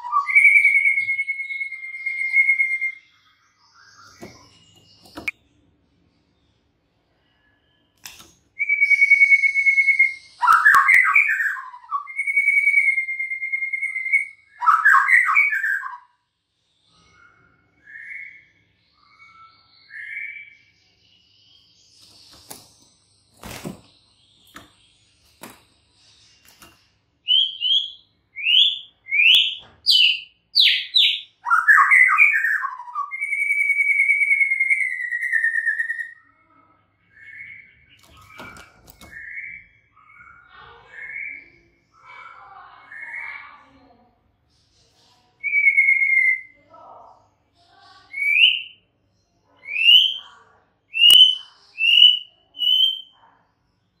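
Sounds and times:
bird singing whistles: 0.0 - 5.4, 7.3 - 16.1, 27.2 - 36.5, 45.4 - 46.6, 48.1 - 48.8, 50.9 - 53.1.

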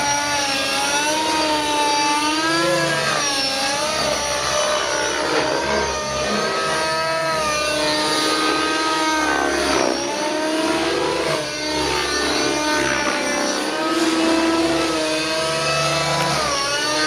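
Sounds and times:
model helicopter engine revving: 0.0 - 17.0.

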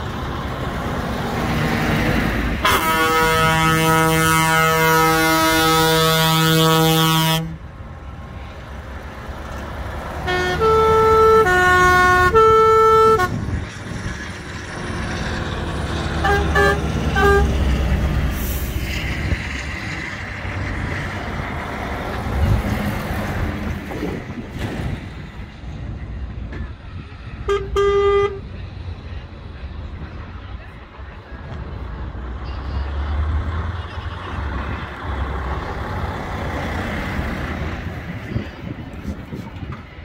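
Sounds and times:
diesel truck rumble: 0.0 - 40.0
multi-note horn tune: 2.6 - 7.6, 10.2 - 13.4, 16.2 - 17.6, 27.5 - 28.4
truck air horns: 2.6 - 7.7, 10.1 - 13.7, 16.1 - 18.9, 27.4 - 28.6.

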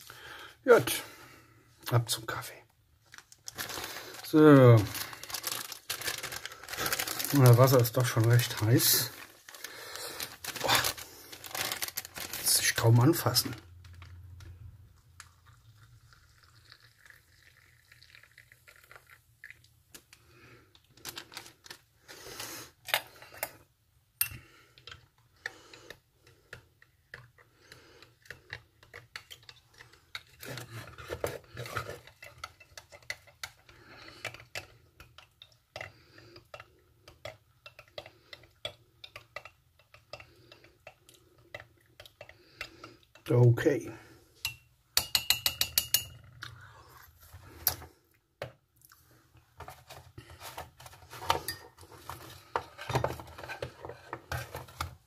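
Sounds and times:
spoon clinking in ceramic mug: 44.4 - 46.2.

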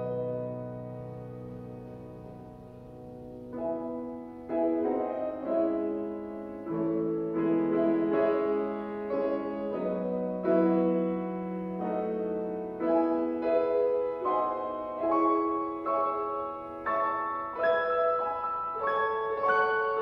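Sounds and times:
grand piano chords: 0.0 - 20.0.

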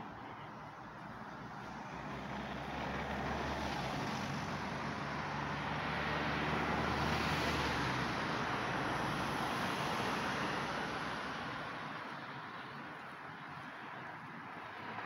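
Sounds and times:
vehicle driving past: 1.5 - 11.9.

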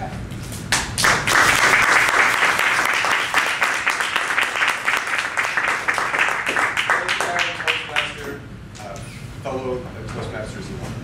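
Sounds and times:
audience applauding: 0.8 - 8.3.

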